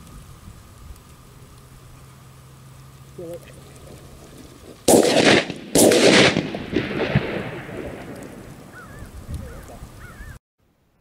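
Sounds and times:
shotgun blasts with rolling echo: 4.8s - 8.9s.

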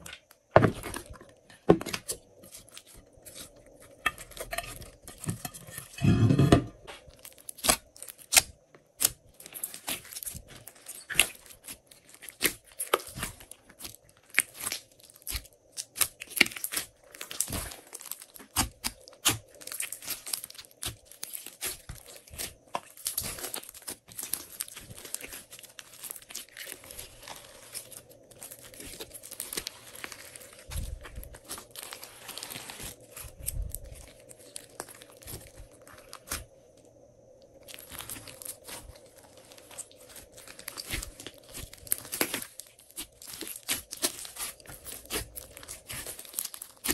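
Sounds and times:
deep slime squelch: 7.1s - 46.9s.

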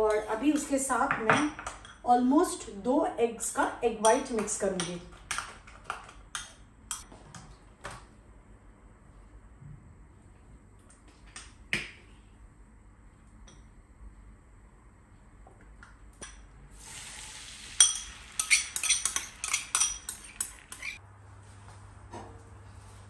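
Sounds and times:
fork clinking against bowl: 17.8s - 21.0s.

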